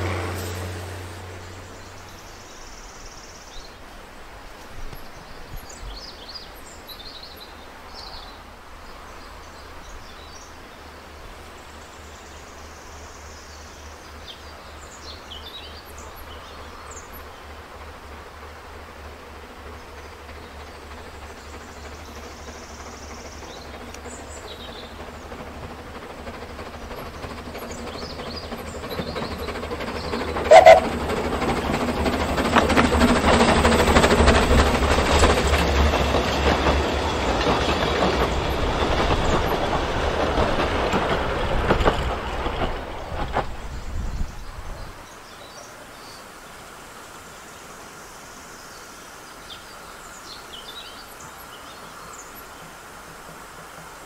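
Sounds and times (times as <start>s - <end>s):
train rumble: 0.0s - 54.0s
wheels clicking over rail joints: 15.0s - 45.4s, 50.7s - 54.0s.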